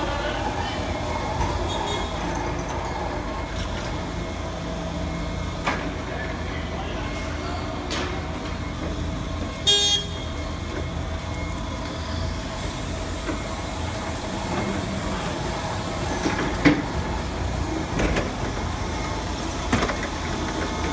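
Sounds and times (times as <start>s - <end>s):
short loud beep: 9.6s - 10.3s.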